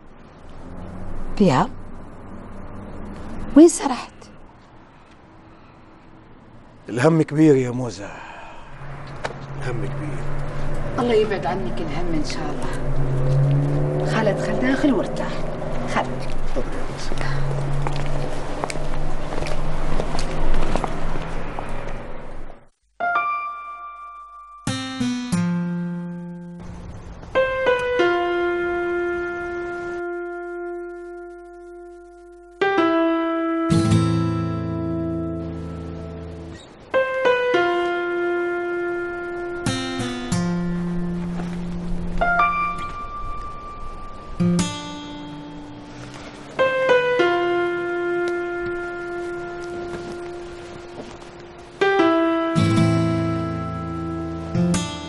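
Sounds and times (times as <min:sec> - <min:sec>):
slow piano music: 0:08.8 - 0:55.0
slow keyboard notes: 0:22.9 - 0:55.0.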